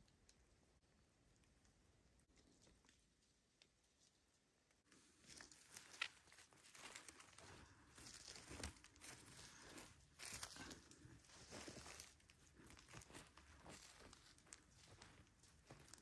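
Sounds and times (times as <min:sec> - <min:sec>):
dry leaves rustling and crackling: 0:05.2 - 0:16.0.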